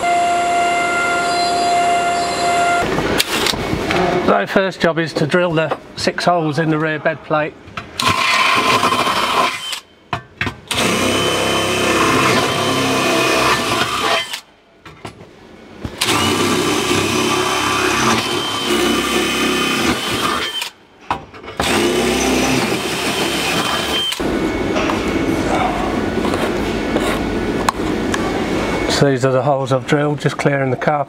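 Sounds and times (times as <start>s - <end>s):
cordless drill whining: 8.0s - 9.8s, 10.7s - 14.5s, 16.0s - 20.8s, 21.6s - 24.4s.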